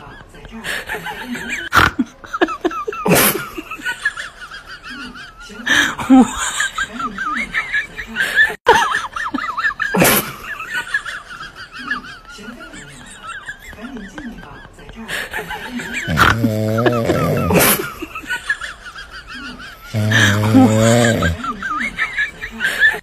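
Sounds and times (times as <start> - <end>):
high wavering laughter: 15.2 - 23.0.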